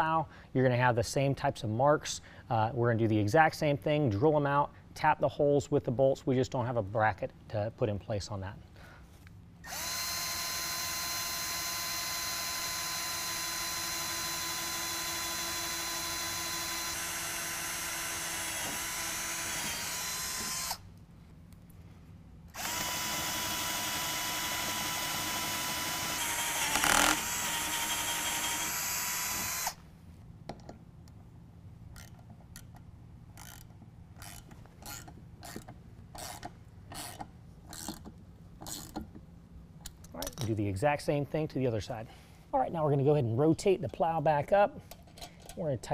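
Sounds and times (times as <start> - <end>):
cordless drill whining: 9.6 - 20.8, 22.5 - 29.8.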